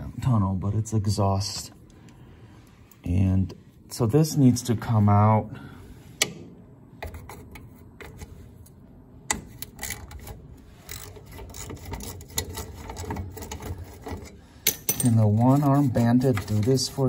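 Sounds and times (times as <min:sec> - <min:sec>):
metal scraping on metal: 0:09.5 - 0:17.0.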